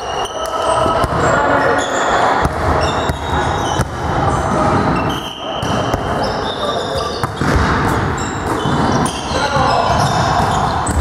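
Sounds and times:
players' voices: 0:00.0 - 0:11.0
shoes squeaking on gym floor: 0:00.0 - 0:11.0
hands slapping volleyball: 0:00.4 - 0:01.3.

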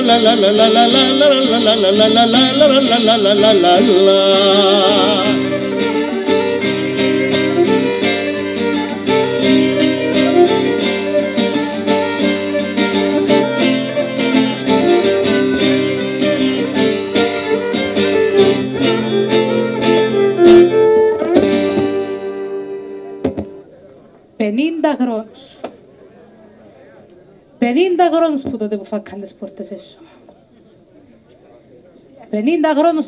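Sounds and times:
bowed violin melody: 0:00.0 - 0:23.6
plucked oud notes: 0:00.0 - 0:23.8.

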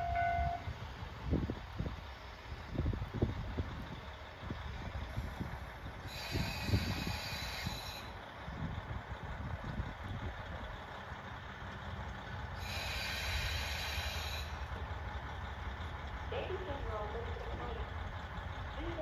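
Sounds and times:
diesel railcar rumbling: 0:00.0 - 0:19.0
air brakes hissing: 0:06.0 - 0:08.2, 0:12.6 - 0:14.9.

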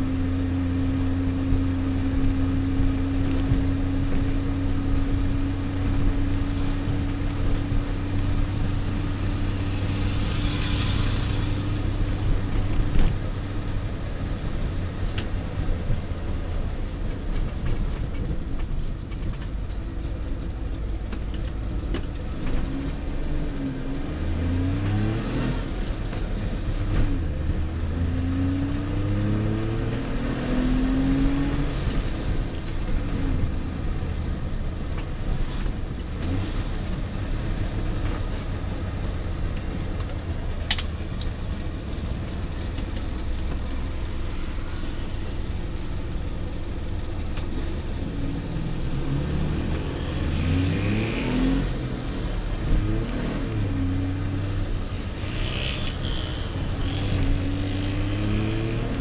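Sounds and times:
two-stroke car engine running: 0:30.9 - 0:59.0.

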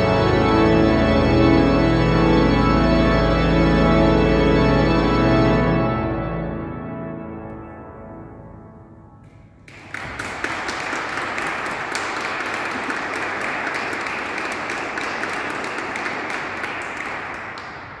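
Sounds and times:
audience applause: 0:09.6 - 0:18.0.

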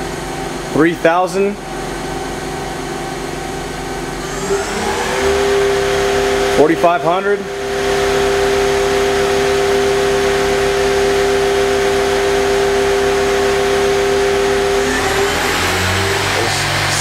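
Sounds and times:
lathe spindle whine: 0:03.6 - 0:17.0.

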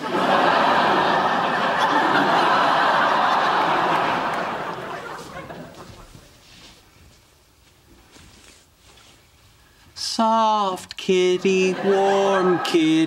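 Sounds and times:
studio audience laughing: 0:00.0 - 0:06.1, 0:11.1 - 0:13.0.

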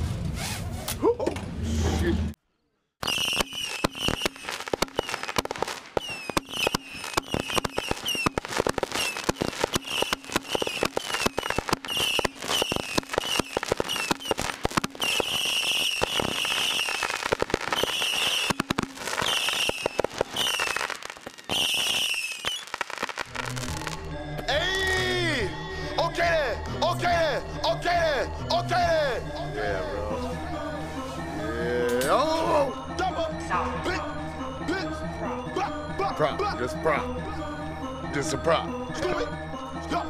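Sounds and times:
fireworks crackling pops: 0:03.0 - 0:24.1
high notes falling in pitch: 0:03.0 - 0:26.6.

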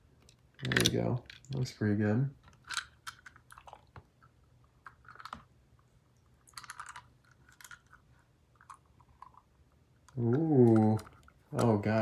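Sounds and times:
toy car clicking in water tub: 0:06.5 - 0:08.0.

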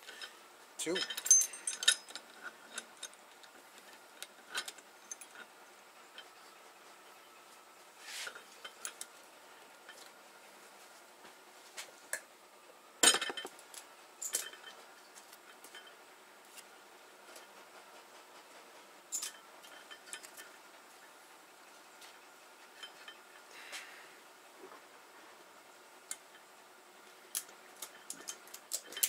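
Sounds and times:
metal clinks of valve spring tools: 0:00.1 - 0:03.2, 0:14.2 - 0:15.9, 0:19.1 - 0:20.5.

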